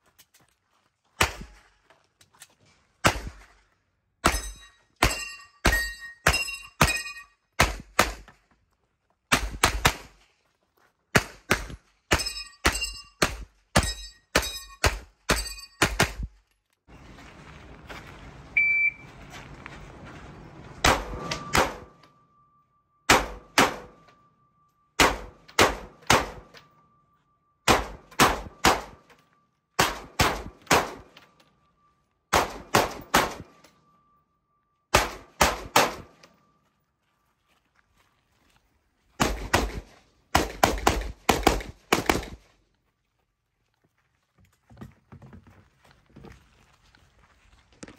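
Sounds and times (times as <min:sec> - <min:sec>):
rifle shots: 0:20.8 - 0:22.0, 0:23.1 - 0:24.0, 0:25.0 - 0:26.6, 0:27.7 - 0:29.0, 0:29.8 - 0:31.1, 0:32.3 - 0:33.6, 0:34.9 - 0:36.2, 0:39.2 - 0:42.4
pistol shots: 0:23.1 - 0:24.0, 0:25.0 - 0:26.6, 0:27.7 - 0:29.0, 0:29.8 - 0:31.1, 0:32.3 - 0:33.6, 0:34.9 - 0:36.2, 0:39.2 - 0:42.4.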